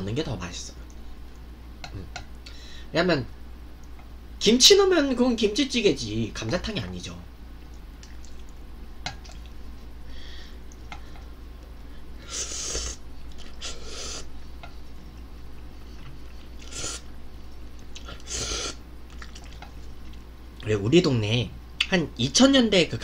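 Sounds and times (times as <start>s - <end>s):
quiet chewing: 7.6s - 9.8s, 13.2s - 20.7s
person slurping noodles: 12.2s - 14.3s, 16.5s - 17.1s, 18.0s - 18.8s.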